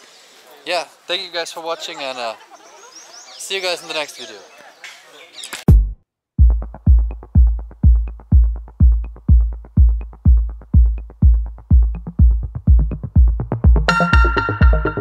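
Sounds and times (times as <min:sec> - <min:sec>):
drum machine kick: 0:05.7 - 0:15.0.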